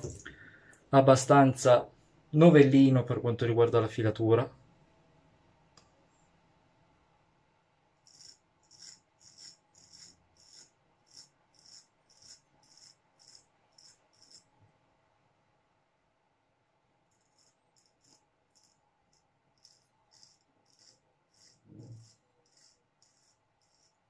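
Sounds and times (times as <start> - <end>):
razor scraping stubble: 8.0 - 14.5, 17.1 - 24.0.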